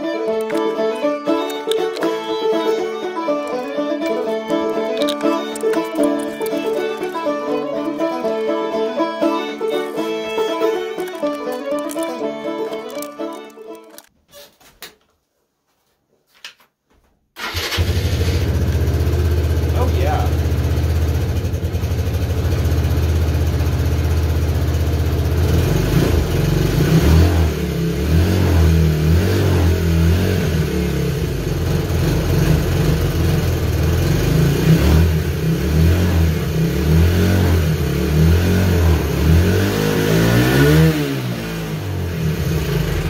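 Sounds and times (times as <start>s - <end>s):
motorcycle engine idling and revving: 17.4s - 43.0s.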